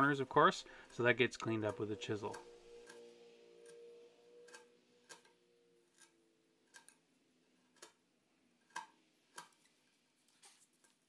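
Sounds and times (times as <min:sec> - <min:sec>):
chisel paring wood ticks: 0:04.5 - 0:05.3, 0:07.8 - 0:08.0, 0:08.7 - 0:09.6.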